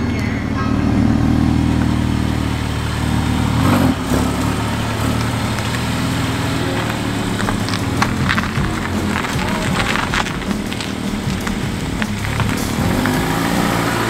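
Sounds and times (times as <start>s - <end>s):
car engine at low revs: 0.0s - 14.0s.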